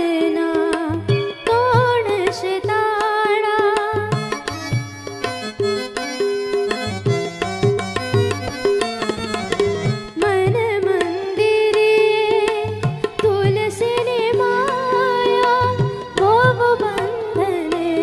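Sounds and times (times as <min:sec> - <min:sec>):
boy singing: 0:00.0 - 0:04.7, 0:10.2 - 0:18.0
tabla rhythm: 0:00.0 - 0:18.0
electronic keyboard melody: 0:04.1 - 0:11.8.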